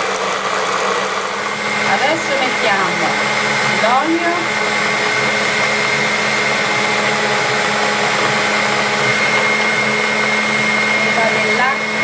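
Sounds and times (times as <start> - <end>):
stand mixer motor whine: 0.0 - 12.0.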